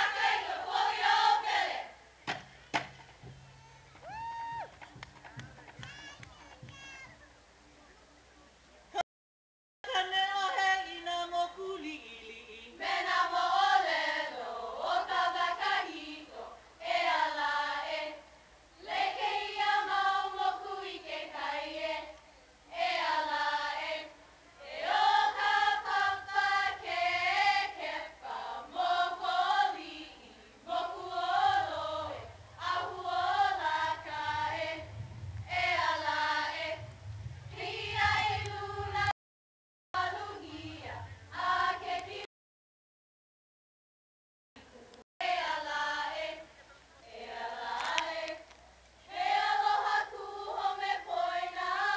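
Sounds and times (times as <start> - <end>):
group chanting in unison: 0.0 - 2.0, 22.7 - 34.9, 49.1 - 51.9.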